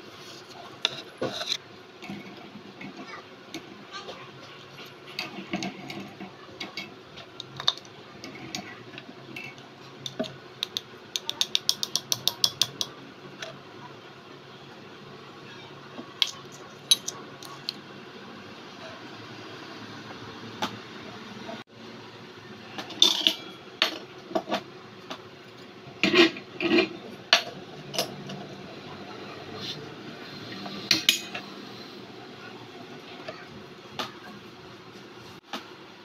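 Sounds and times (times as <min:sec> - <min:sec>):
metal spoon clicking on steel pot: 0:10.0 - 0:12.9.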